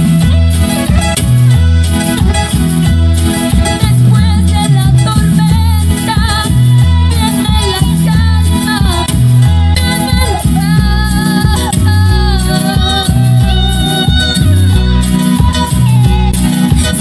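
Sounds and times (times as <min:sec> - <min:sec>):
bass line: 0:00.0 - 0:17.0
keyboards: 0:00.0 - 0:17.0
percussion: 0:00.0 - 0:17.0
woman singing: 0:03.5 - 0:17.0.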